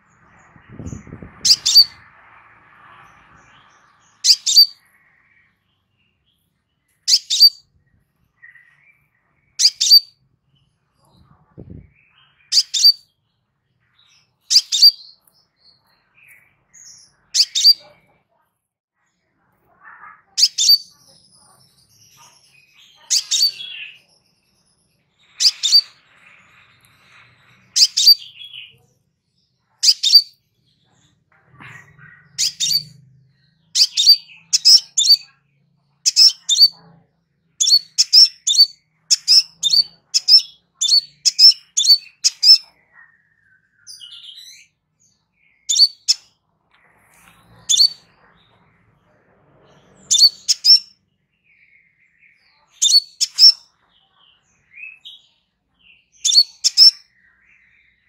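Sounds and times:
bird high-pitched chips: 1.4s - 2.1s, 4.2s - 4.8s, 7.0s - 7.6s, 9.6s - 10.1s, 12.5s - 13.0s, 14.4s - 15.2s, 17.3s - 17.9s, 19.9s - 21.0s, 22.2s - 24.0s, 25.3s - 26.1s, 27.7s - 28.7s, 29.8s - 30.3s, 32.1s - 33.0s, 33.8s - 35.3s, 36.0s - 36.8s, 37.6s - 42.7s, 45.7s - 46.3s, 47.4s - 48.1s, 50.1s - 50.9s, 52.8s - 53.6s, 56.2s - 57.0s.

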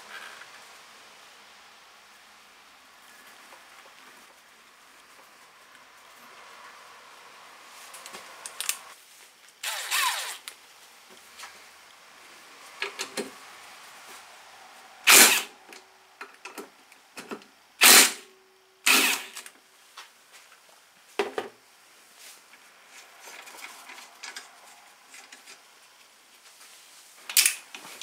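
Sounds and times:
cordless power driver: 15.1s - 15.5s, 18.9s - 19.5s.

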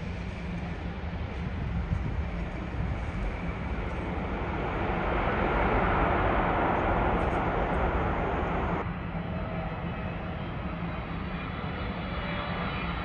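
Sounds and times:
jet engine rushing: 0.0s - 8.9s
low rumble: 0.0s - 9.0s.

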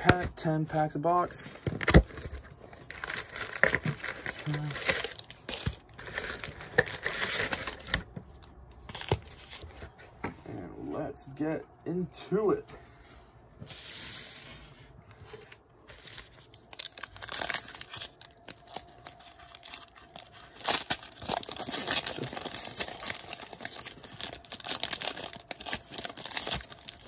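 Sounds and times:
card pack wrapper crinkling: 1.6s - 9.6s, 15.9s - 27.0s.

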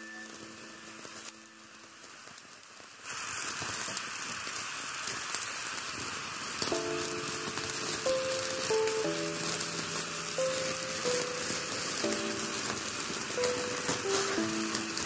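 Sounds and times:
curry sizzling and bubbling: 0.0s - 15.0s
background music: 6.7s - 15.0s.

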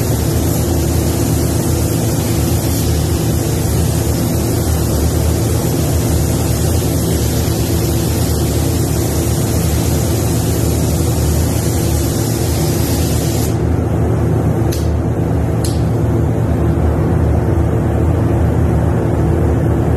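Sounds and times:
spray gun hissing: 0.0s - 13.6s
low hum of fans: 0.0s - 19.9s.

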